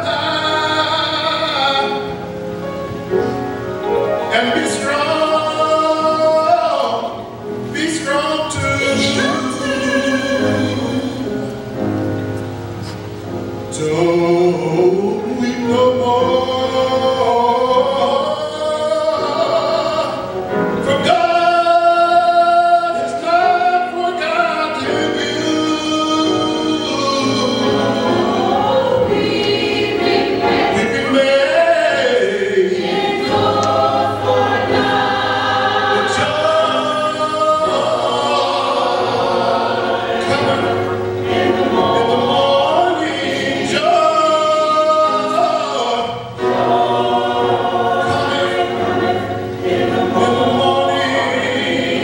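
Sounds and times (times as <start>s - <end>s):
man singing lead into microphone: 0.0s - 2.2s, 4.2s - 11.5s, 13.7s - 29.6s, 30.5s - 34.9s, 35.9s - 46.8s
gospel choir singing: 0.0s - 52.0s.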